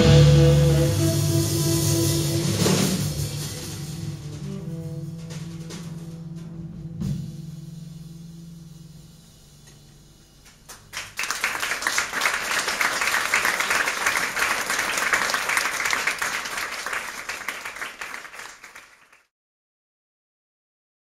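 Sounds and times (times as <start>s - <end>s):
audience applauding: 10.7s - 19.3s.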